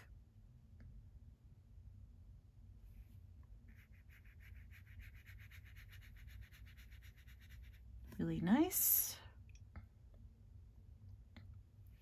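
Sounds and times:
brush scratching on paper: 0:03.7 - 0:08.0.

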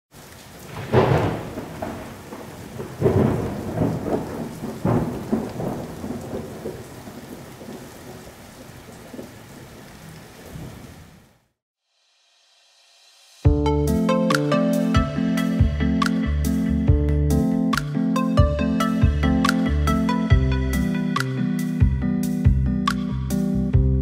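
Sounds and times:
steady rain: 0:00.1 - 0:11.6
thunder rolling: 0:00.6 - 0:09.4.

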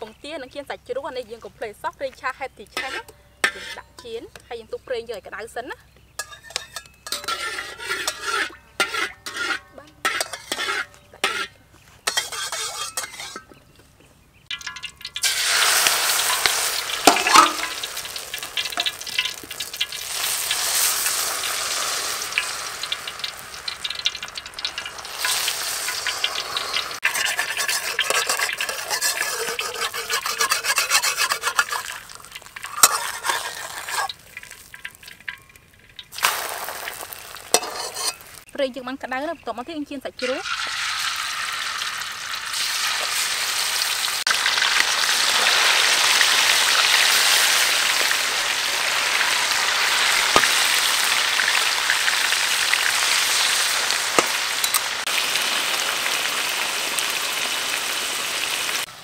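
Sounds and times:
egg sizzling in hot wok: 0:01.1 - 0:04.8, 0:06.1 - 0:13.5, 0:14.5 - 0:38.5, 0:40.2 - 0:59.0
utensil scraping: 0:02.7 - 0:04.2, 0:06.2 - 0:13.6, 0:26.0 - 0:34.8, 0:37.5 - 0:38.4.

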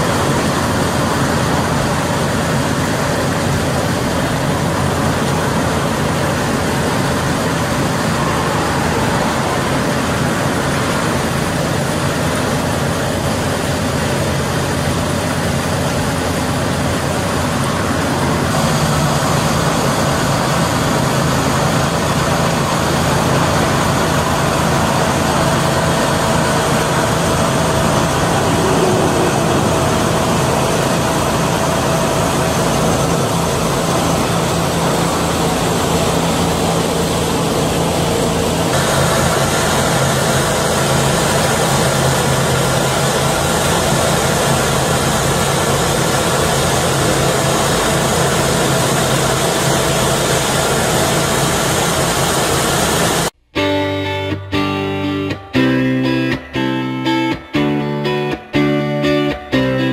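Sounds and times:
constant low hum: 0:00.0 - 0:43.0
concrete paver engine running: 0:00.0 - 0:53.6.

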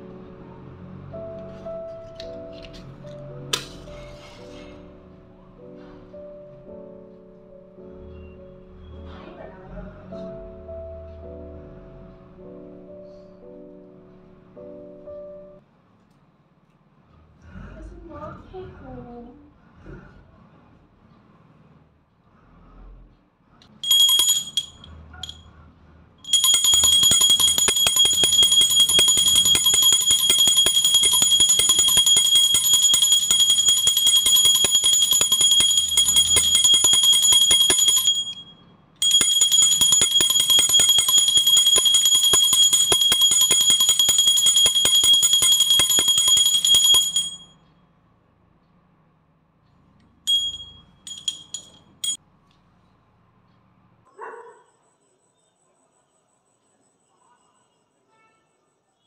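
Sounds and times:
small hand bell ringing: 0:23.8 - 0:25.4, 0:26.3 - 0:47.5, 0:50.3 - 0:52.2.

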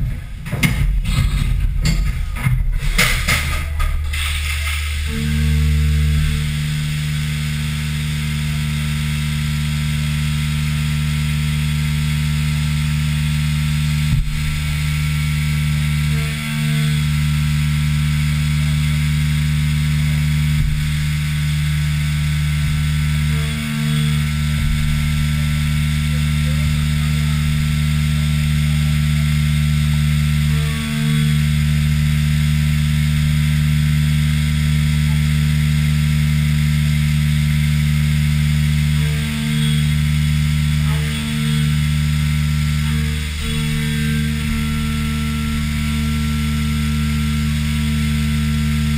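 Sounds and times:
milling machine spindle hum: 0:00.0 - 0:48.9
coolant hissing: 0:02.7 - 0:11.6.

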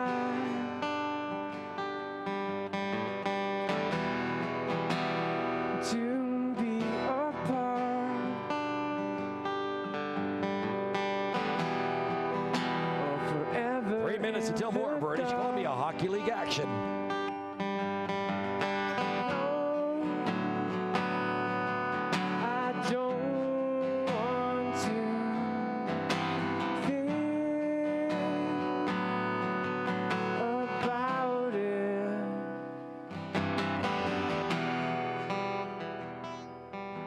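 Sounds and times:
man singing into microphone: 0:00.0 - 0:00.9, 0:05.8 - 0:08.5, 0:12.9 - 0:16.9, 0:22.4 - 0:25.8, 0:26.8 - 0:28.7, 0:30.4 - 0:32.5
acoustic guitar strumming: 0:00.0 - 0:37.0.

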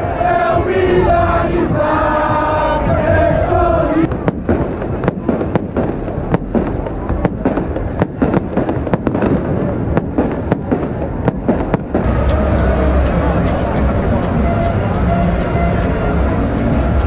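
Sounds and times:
large crowd noise: 0:00.0 - 0:17.0
fireworks bangs: 0:04.0 - 0:13.1.

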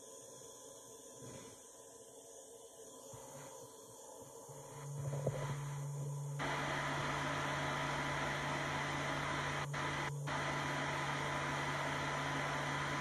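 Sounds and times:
low motor hum: 0:04.8 - 0:13.0
hair dryer air rush: 0:06.4 - 0:13.0.

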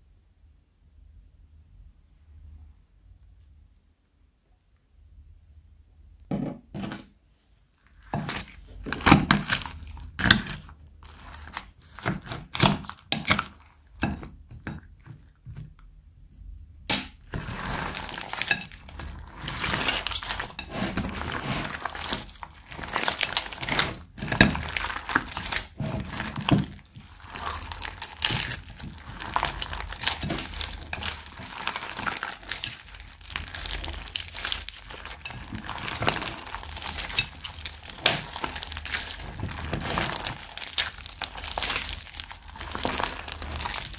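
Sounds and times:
slime squishing and crackling: 0:07.7 - 0:15.8, 0:16.9 - 0:43.9.

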